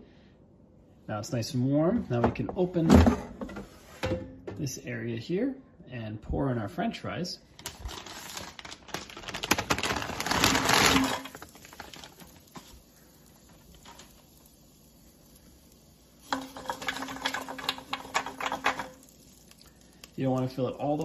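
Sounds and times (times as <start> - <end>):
fries clicking: 7.5 - 21.0
frozen fries clattering into basket: 7.6 - 12.8, 13.4 - 14.2, 16.2 - 20.2.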